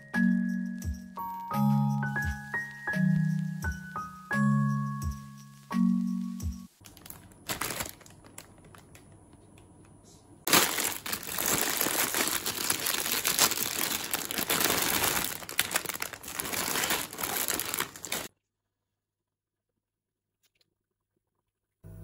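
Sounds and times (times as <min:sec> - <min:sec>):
packaging crinkling: 0:06.8 - 0:09.1, 0:10.5 - 0:18.3.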